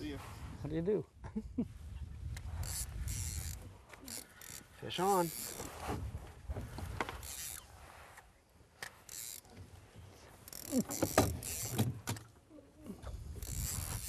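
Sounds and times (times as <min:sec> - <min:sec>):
fishing reel cranking: 0:02.4 - 0:05.7, 0:07.1 - 0:07.7, 0:08.8 - 0:09.6, 0:10.4 - 0:11.9, 0:13.2 - 0:14.0.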